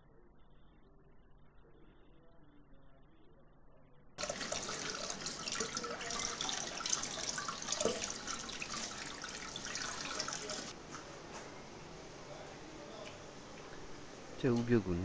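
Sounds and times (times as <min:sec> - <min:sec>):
tap running into bowl of water: 0:04.2 - 0:10.7
water splashing: 0:04.2 - 0:10.8.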